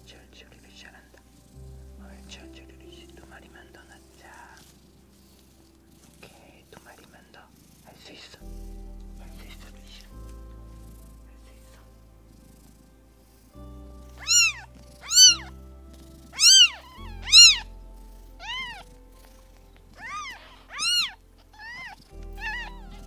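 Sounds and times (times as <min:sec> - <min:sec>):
background music: 0:00.0 - 0:23.0
cat meowing: 0:14.2 - 0:15.5, 0:16.3 - 0:17.8, 0:18.4 - 0:18.8, 0:19.9 - 0:23.0.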